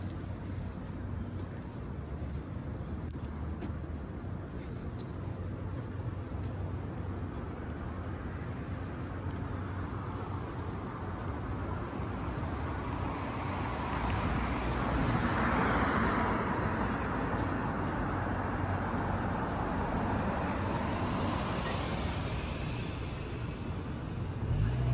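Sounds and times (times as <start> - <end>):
car passing: 12.5 - 24.9.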